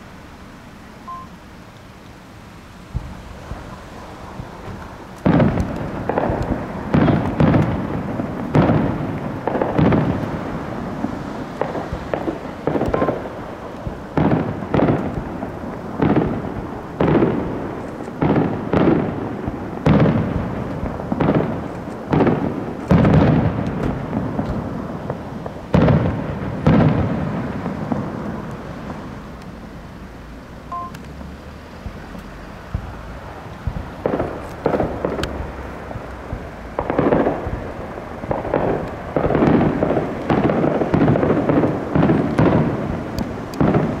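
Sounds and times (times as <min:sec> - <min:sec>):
fireworks bursting with echo: 0:00.0 - 0:44.0.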